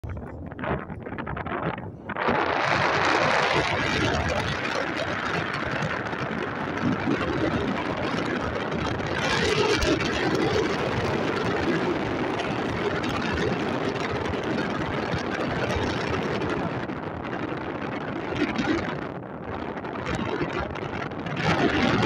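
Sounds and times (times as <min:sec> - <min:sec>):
wind rushing over microphone: 0:00.0 - 0:22.0.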